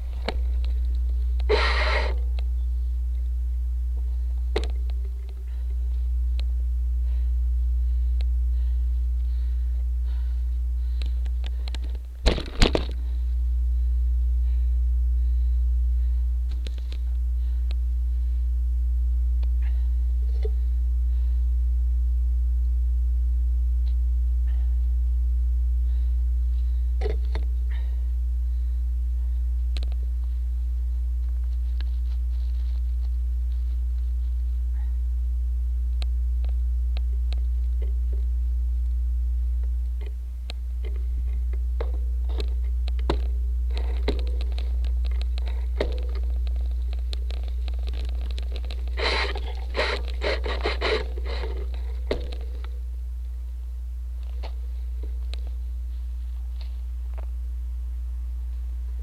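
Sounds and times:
bike clicks and rattles: 40.8s - 52.7s.

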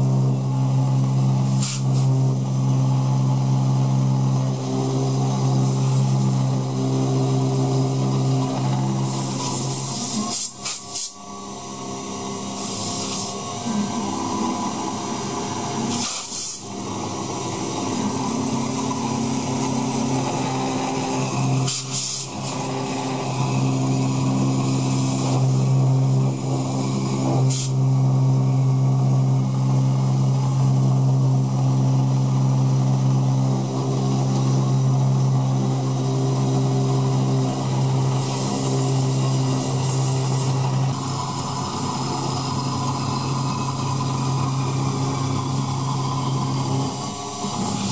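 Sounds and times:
milling machine humming: 0.0s - 47.9s
compressed air hissing: 1.4s - 2.2s, 9.1s - 11.2s, 12.5s - 14.0s, 15.8s - 16.8s, 21.6s - 22.6s, 26.6s - 27.8s.

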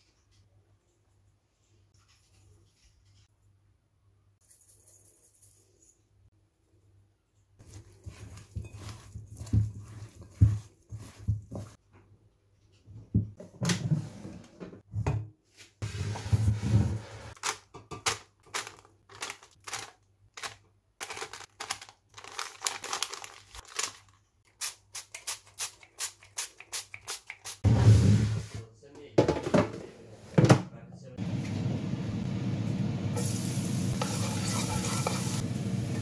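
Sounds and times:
paper crinkling: 17.4s - 24.3s.

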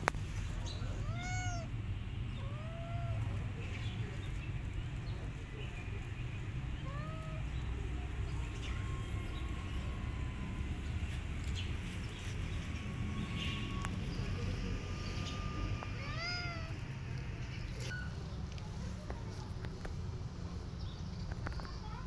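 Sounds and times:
cat meowing: 0.8s - 3.4s, 6.8s - 7.6s, 13.2s - 14.3s, 15.3s - 17.0s.

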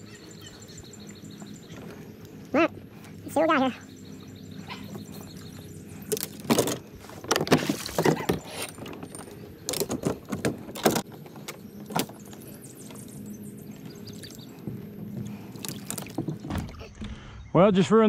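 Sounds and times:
kayak gear knocking and rattling: 6.0s - 13.2s, 14.6s - 17.2s.

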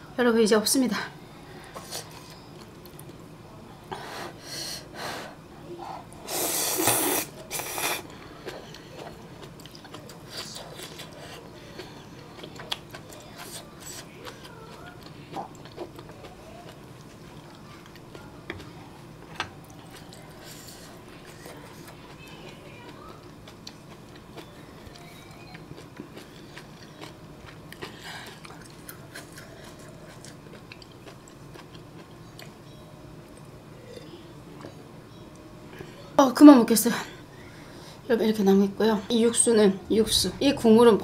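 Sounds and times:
quiet chewing: 6.8s - 32.7s.

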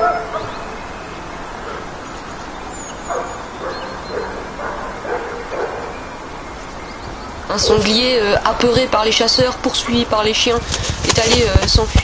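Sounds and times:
dogs barking: 0.0s - 6.3s.

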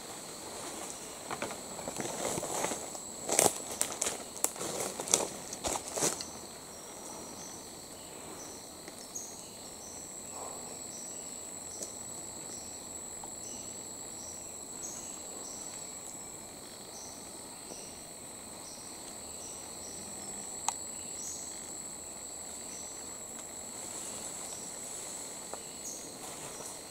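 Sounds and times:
insect chirping: 0.0s - 26.9s
insects buzzing: 0.0s - 26.9s.

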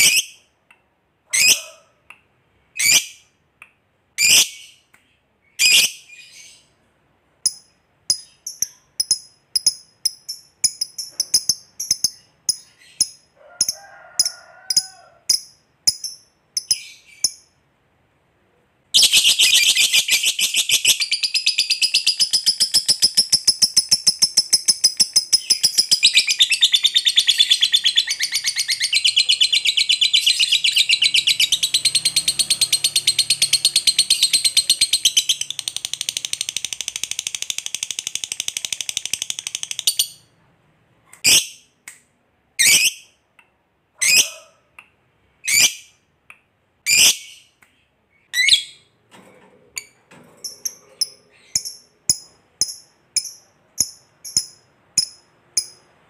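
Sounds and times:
lovebird chirping and chattering: 0.0s - 0.4s, 1.3s - 1.6s, 2.8s - 3.3s, 4.2s - 6.7s, 7.4s - 17.6s, 19.0s - 40.3s, 41.2s - 41.7s, 42.6s - 43.1s, 45.4s - 46.0s, 46.8s - 47.6s, 48.2s - 48.9s, 49.8s - 55.9s.

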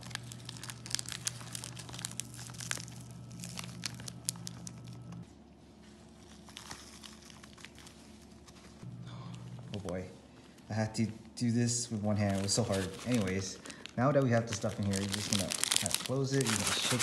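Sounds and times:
plastic wrappers crinkling: 0.0s - 5.2s, 5.8s - 8.8s, 11.9s - 17.0s.

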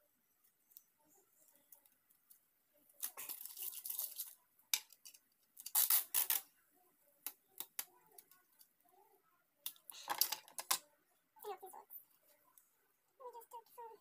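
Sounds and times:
sticky tape pulled off roll: 5.6s - 6.4s.

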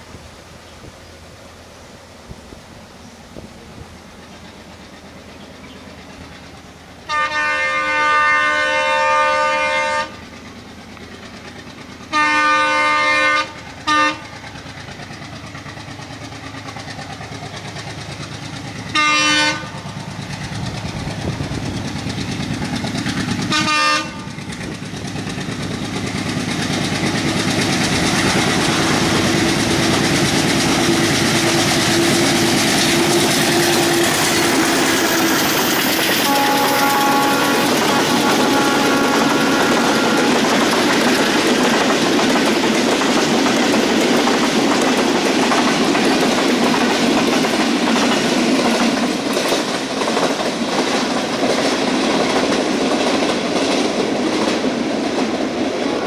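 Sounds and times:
train rumbling on rails: 0.0s - 56.0s
locomotive air horn: 7.1s - 10.2s, 12.1s - 14.3s, 18.9s - 19.8s, 23.4s - 24.4s, 31.4s - 40.8s.

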